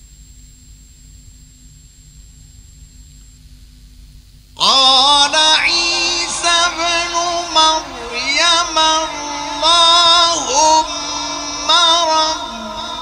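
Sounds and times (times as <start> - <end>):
man chanting recitation: 4.6 - 13.0.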